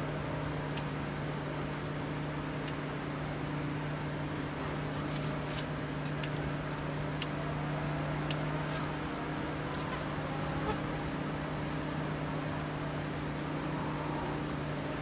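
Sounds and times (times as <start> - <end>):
steady low hum: 0.0 - 15.0
small birds chirping: 5.5 - 10.8.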